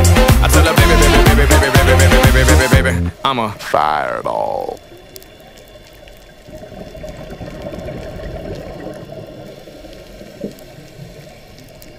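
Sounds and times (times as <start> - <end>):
faint crackles: 3.6 - 11.9
underwater bubbling rush: 4.1 - 11.9.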